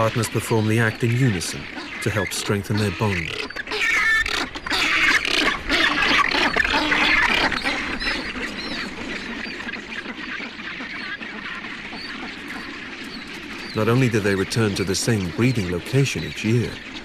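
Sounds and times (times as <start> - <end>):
penguin colony calling: 0.0 - 17.0
penguin display calls: 0.0 - 17.0.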